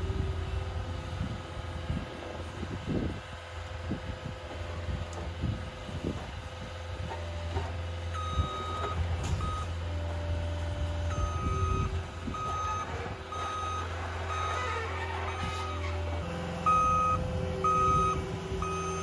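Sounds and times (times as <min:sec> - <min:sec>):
diesel engine running: 0:00.0 - 0:19.0
backup alarm beeping: 0:08.2 - 0:09.7, 0:11.1 - 0:19.0.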